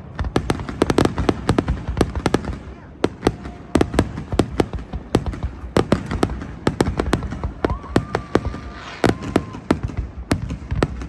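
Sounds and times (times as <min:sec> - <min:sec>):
fireworks bangs and crackles: 0:00.0 - 0:11.0
faint fireworks whistle: 0:02.5 - 0:11.0.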